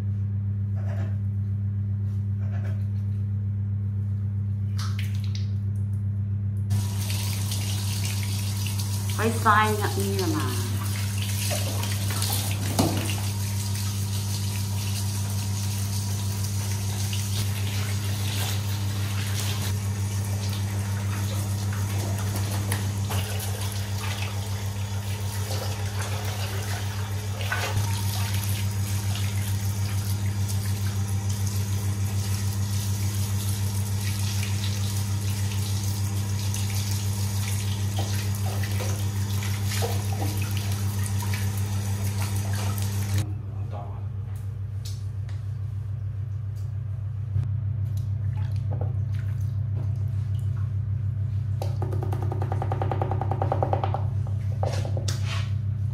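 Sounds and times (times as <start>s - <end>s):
steady low hum: 0.0s - 52.7s
water from hose splashing: 6.7s - 43.2s.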